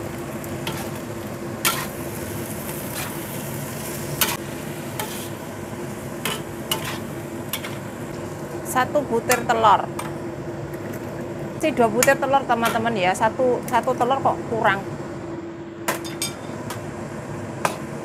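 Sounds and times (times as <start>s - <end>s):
food sizzling: 0.0s - 14.1s
metal spatula scraping a wok: 0.6s - 1.0s, 1.6s - 2.0s, 5.0s - 5.4s, 6.3s - 7.8s.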